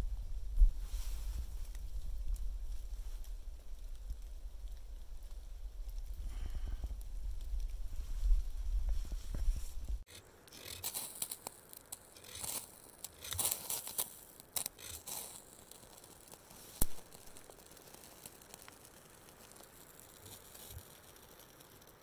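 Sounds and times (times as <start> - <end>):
knife scraping ferro rod: 10.1 - 16.9.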